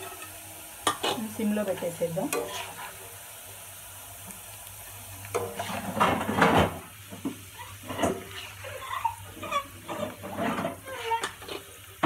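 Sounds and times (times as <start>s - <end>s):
oil sizzling: 0.0s - 12.0s
metal spoon scraping pan: 2.3s - 3.0s, 7.8s - 11.7s.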